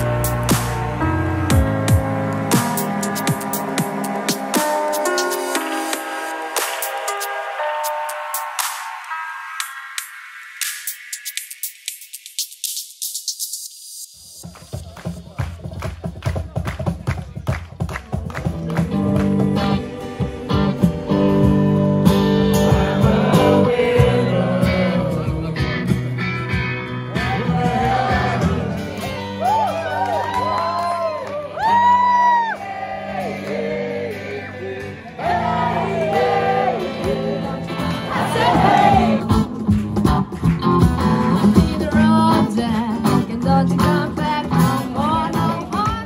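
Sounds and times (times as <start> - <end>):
guitar: 0.0 - 10.6, 17.8 - 46.0
cajon beat: 11.5 - 23.0, 36.9 - 46.0
person singing: 19.0 - 26.0, 41.3 - 46.0
woman singing: 41.4 - 46.0.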